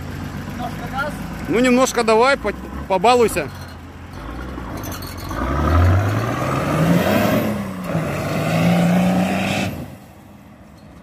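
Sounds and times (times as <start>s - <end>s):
car engine revving: 4.1s - 10.0s.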